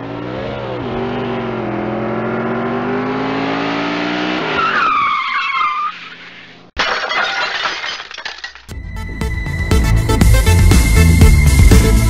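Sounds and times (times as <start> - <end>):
car engine accelerating: 0.0 - 4.6
tyres screeching: 4.5 - 6.6.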